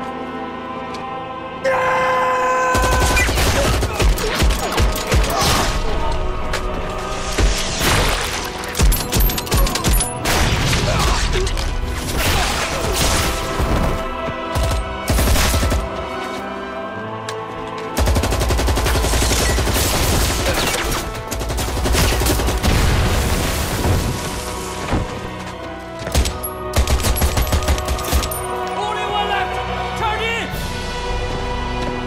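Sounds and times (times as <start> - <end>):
dramatic background music: 0.0 - 32.0
rapid machine-gun fire: 18.0 - 20.6, 21.3 - 22.8.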